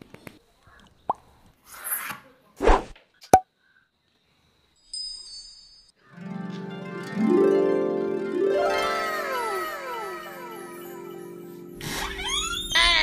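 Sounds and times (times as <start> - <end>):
sparkling chime: 4.8 - 6.1, 6.9 - 12.6
harp-like plucked-string music: 6.2 - 11.8.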